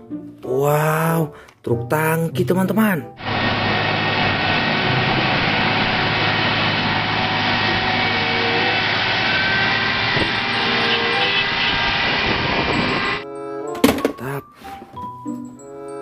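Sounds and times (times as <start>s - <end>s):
truck diesel engine running: 3.2s - 13.2s.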